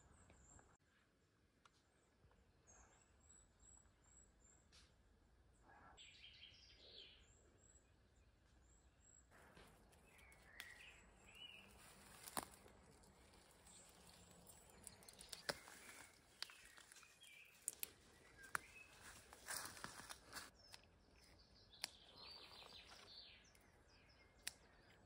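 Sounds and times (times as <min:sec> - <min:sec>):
faint birdsong: 0:00.0 - 0:25.0
pea pods clicking and rustling: 0:09.4 - 0:23.7.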